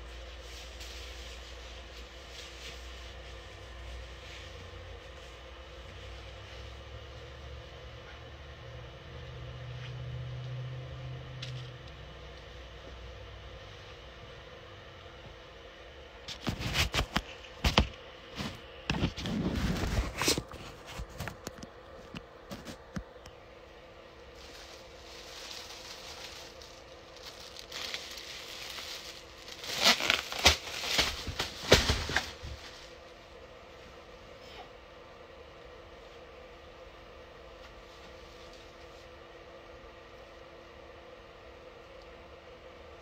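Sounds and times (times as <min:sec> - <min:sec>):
bedding rustling and crinkling: 0:00.0 - 0:06.6, 0:16.3 - 0:23.0, 0:24.2 - 0:34.0
steady hum: 0:00.0 - 0:43.0.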